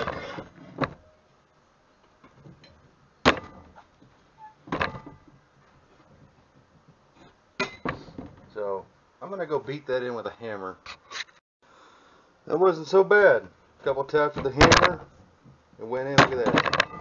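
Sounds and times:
steel parts knocking and clanking: 4.6s - 5.4s, 7.2s - 8.6s, 14.4s - 15.1s, 16.1s - 17.0s.

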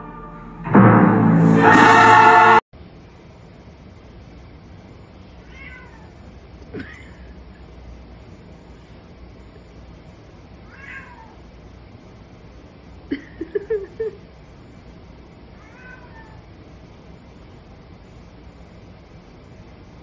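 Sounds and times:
cats meowing: 5.4s - 6.2s, 10.7s - 11.4s, 15.6s - 16.4s.

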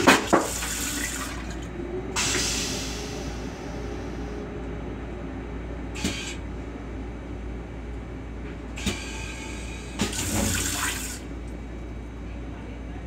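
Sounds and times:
toilet flushing water rushing: 0.0s - 3.3s, 8.8s - 11.3s
train low rumble: 0.0s - 13.0s
toilet flush clicks: 8.8s - 9.2s, 10.0s - 11.2s.

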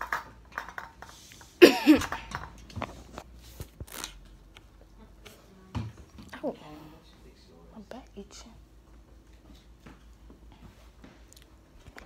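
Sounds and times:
person coughing: 1.6s - 2.3s.

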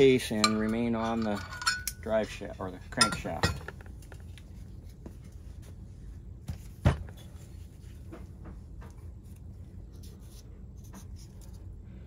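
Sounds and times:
metal parts clicking: 0.0s - 2.4s.

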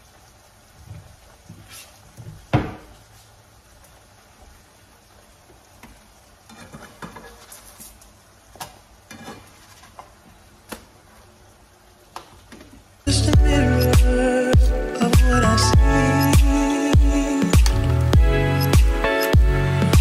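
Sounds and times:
pans sizzling faintly: 0.0s - 13.1s.

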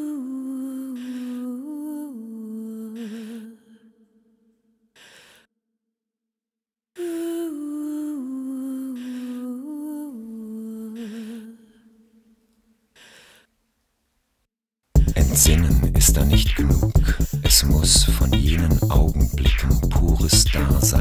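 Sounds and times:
woman singing wordless melody: 0.0s - 4.1s, 7.0s - 12.5s
soft breaths: 5.0s - 5.5s, 8.8s - 9.5s, 10.8s - 13.8s.

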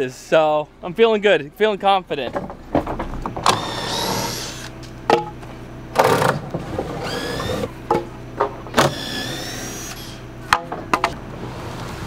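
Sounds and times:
cordless drill whining: 3.4s - 4.8s, 6.9s - 7.7s, 8.8s - 10.2s
boards clattering: 5.1s - 7.0s.

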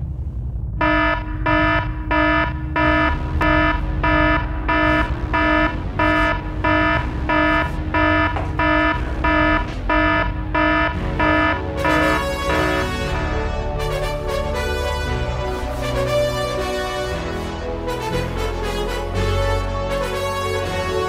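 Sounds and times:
low rumble: 0.0s - 14.2s
electronic alarm beeping: 0.8s - 13.4s.

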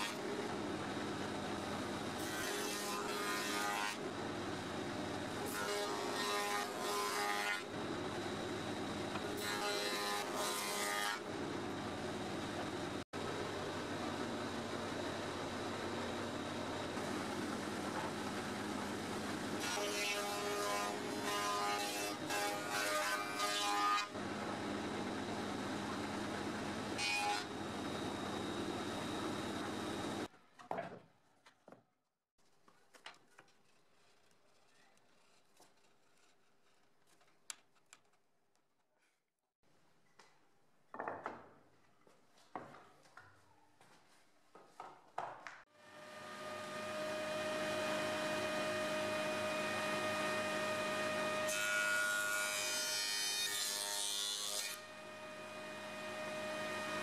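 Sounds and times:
wood shaper cutter whining: 45.8s - 57.0s.

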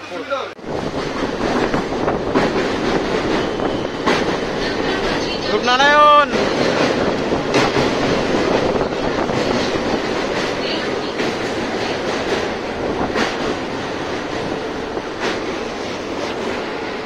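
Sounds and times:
train rumble: 0.6s - 17.0s
wheels clacking over rail joints: 0.8s - 16.6s.

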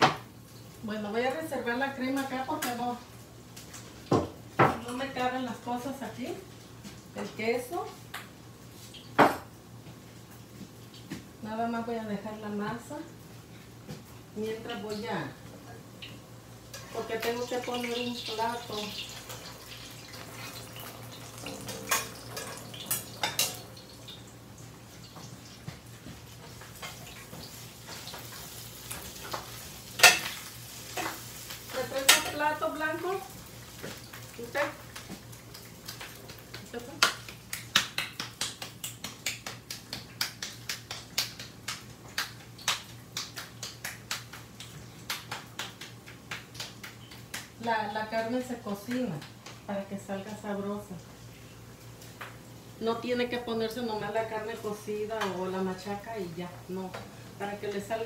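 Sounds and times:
food frying in hot oil: 16.0s - 58.0s
dishes clinking: 21.3s - 23.8s.

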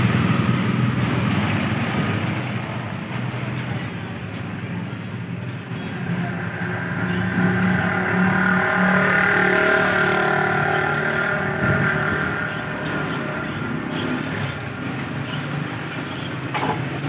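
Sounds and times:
vehicle engine passing: 5.9s - 15.2s.

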